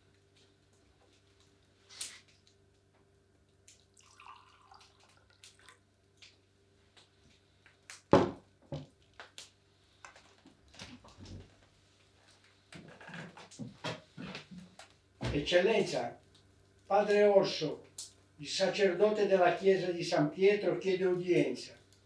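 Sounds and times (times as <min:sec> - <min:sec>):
liquid pouring into a glass: 0:03.8 - 0:05.8.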